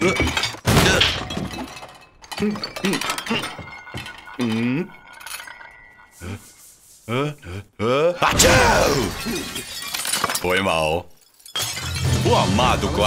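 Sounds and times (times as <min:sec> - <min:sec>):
dishes clattering: 0:00.0 - 0:06.2
porcelain dishes clinking: 0:00.0 - 0:06.2
strained voice sounds: 0:06.2 - 0:09.3.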